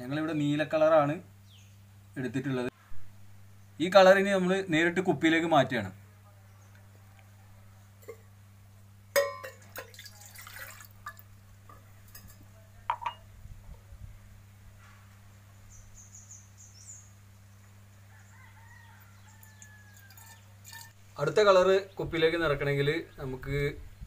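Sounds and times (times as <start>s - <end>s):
bird chirping: 1.4s - 1.9s, 15.6s - 20.5s
glass clinking against metal mug: 9.2s - 11.2s, 12.1s - 13.2s
water pouring into mug: 9.7s - 11.3s, 19.4s - 21.0s.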